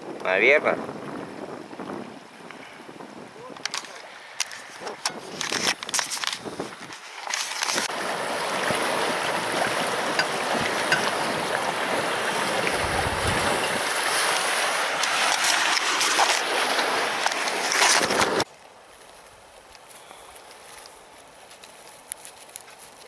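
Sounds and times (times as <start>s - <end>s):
river rushing over riffle: 7.2s - 18.5s.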